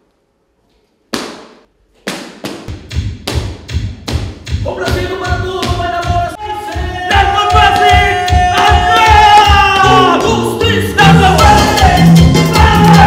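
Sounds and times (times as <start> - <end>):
fast steady thumping beat: 2.4 - 10.4.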